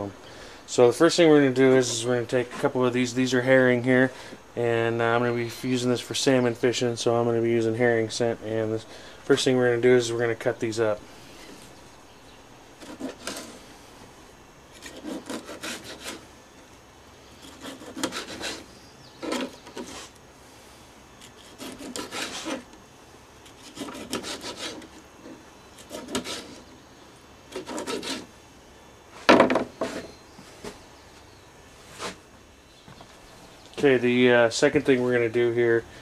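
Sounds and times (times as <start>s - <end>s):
knife sawing through fish: 12.8s - 13.6s, 14.8s - 16.2s, 17.4s - 20.1s, 21.3s - 22.7s, 23.4s - 26.7s, 27.5s - 28.3s.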